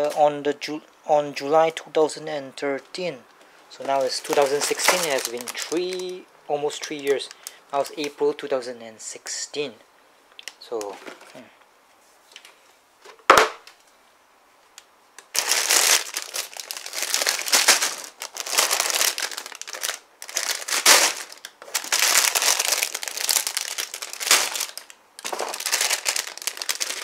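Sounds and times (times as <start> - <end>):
plastic bags crinkling: 3.7 - 8.2, 15.2 - 27.0.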